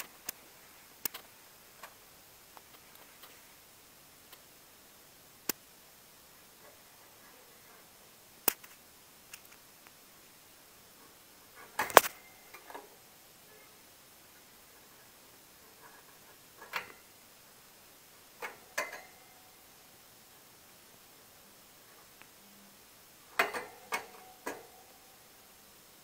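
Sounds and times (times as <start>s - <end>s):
sharp clicks and taps: 1.0s - 2.0s, 5.4s - 5.6s, 8.4s - 10.0s.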